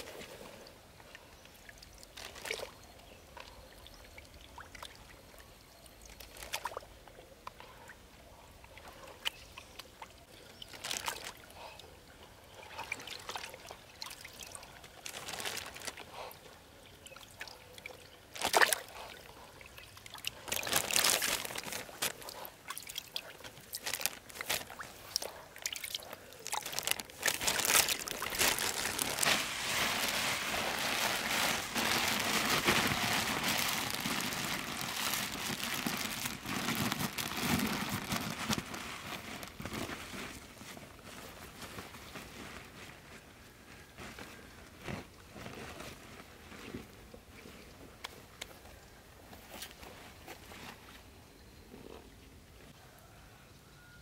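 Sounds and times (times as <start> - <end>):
water splashing and trickling: 0.0 - 43.0.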